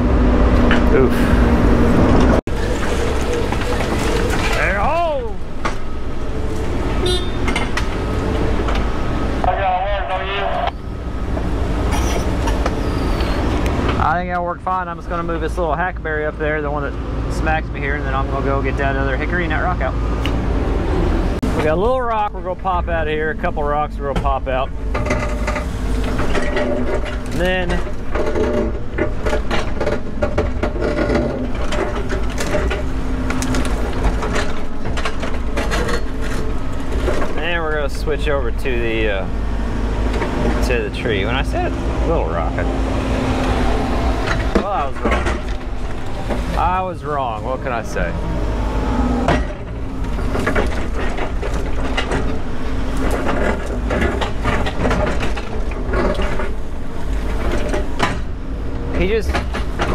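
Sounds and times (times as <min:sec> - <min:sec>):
excavator engine rumble: 0:00.0 - 0:59.9
excavator bucket clanking on rock: 0:24.1 - 0:37.6, 0:42.7 - 0:47.5, 0:49.2 - 0:59.9.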